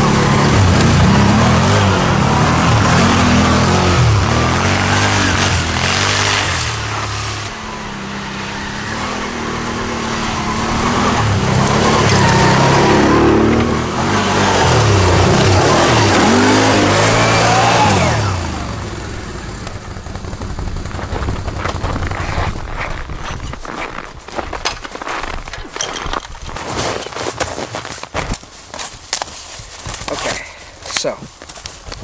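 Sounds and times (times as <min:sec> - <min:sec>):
quad bike engine passing: 0:00.0 - 0:24.1.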